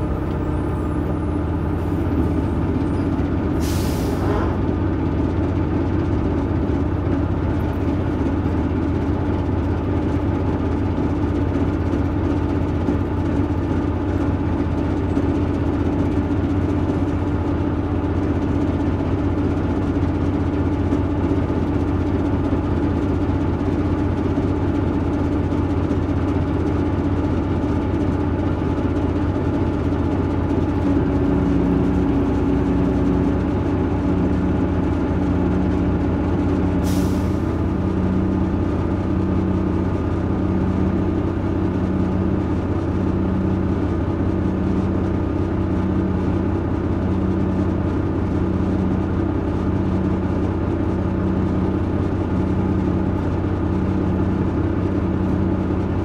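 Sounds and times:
bus diesel engine running: 0.0 - 56.0
short sharp hiss of air: 3.6 - 4.4.

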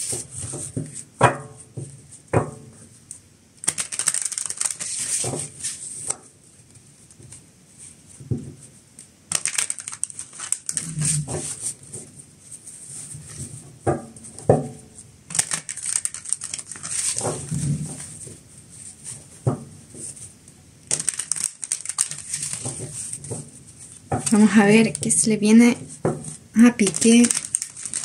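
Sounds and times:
cards being shuffled: 3.6 - 6.2, 9.3 - 11.8, 15.3 - 18.2, 20.9 - 23.4, 25.8 - 28.0.

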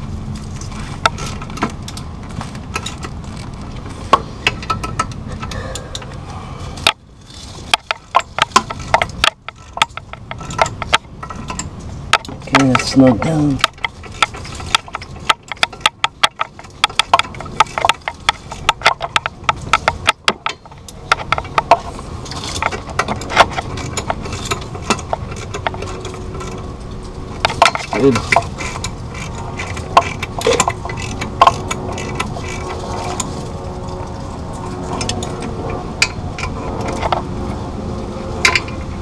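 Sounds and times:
tool handling: 6.8 - 37.2
hand ratchet clicking: 6.9 - 33.4.

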